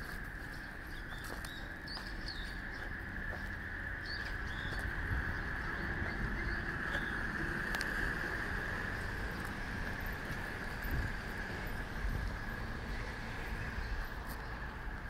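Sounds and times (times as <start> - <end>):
steady high-pitched drone: 0.0 - 15.0
bird chirps: 0.5 - 3.0, 4.0 - 7.3.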